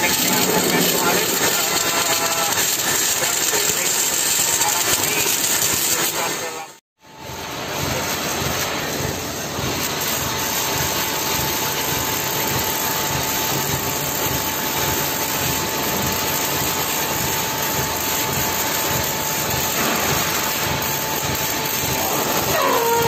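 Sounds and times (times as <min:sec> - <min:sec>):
crane machinery drone: 0:00.0 - 0:23.0.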